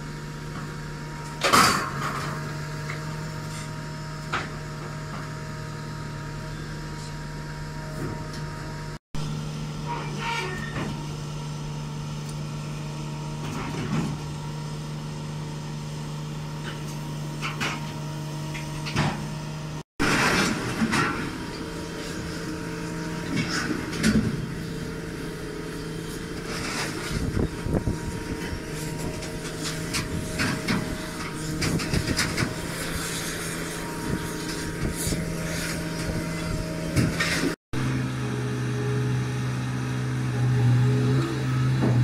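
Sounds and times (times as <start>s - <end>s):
heavy machinery low hum: 0.0s - 42.0s
steel scrap clanking and banging: 9.8s - 11.0s, 20.0s - 22.3s, 26.0s - 37.6s.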